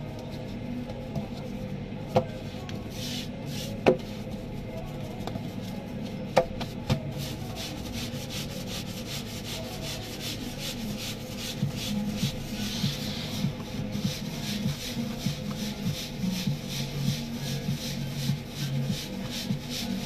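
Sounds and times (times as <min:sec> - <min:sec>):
hands working dough: 0:00.0 - 0:20.0.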